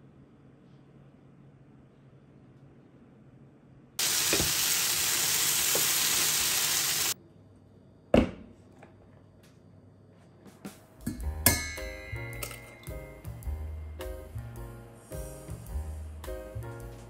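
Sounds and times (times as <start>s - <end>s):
steady hiss: 4.0s - 7.2s, 14.3s - 16.9s.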